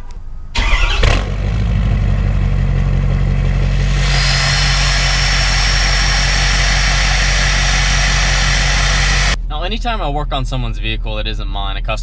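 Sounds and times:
pickup truck engine idling: 0.6 - 9.4
steady high whine: 1.3 - 9.6
hiss: 3.7 - 9.4.

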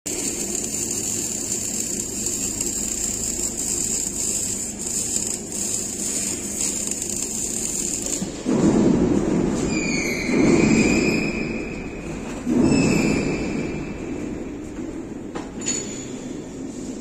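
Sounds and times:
arc welding hiss: 0.1 - 8.5.

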